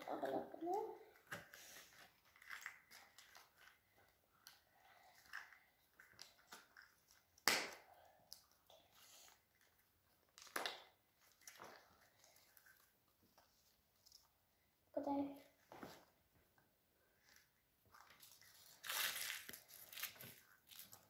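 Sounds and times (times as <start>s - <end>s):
plastic parts clicking and crinkling: 0.2s - 7.4s.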